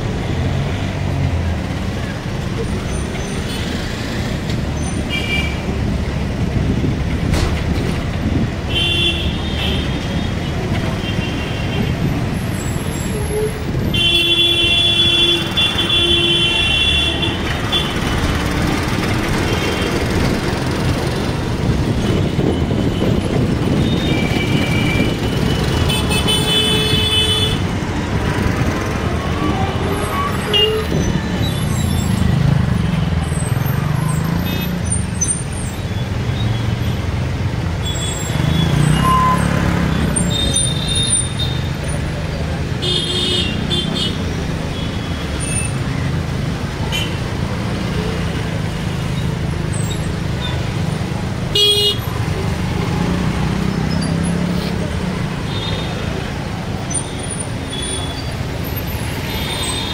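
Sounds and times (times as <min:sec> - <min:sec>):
bus engine and road noise: 0:00.0 - 0:59.9
vehicle horns honking: 0:22.2 - 0:27.7, 0:42.8 - 0:45.3, 0:51.5 - 0:52.1.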